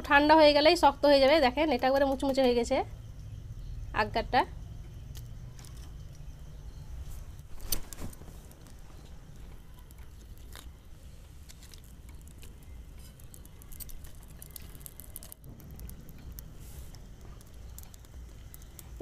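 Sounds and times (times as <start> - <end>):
pancake crackling and clicks: 7.3 - 19.0.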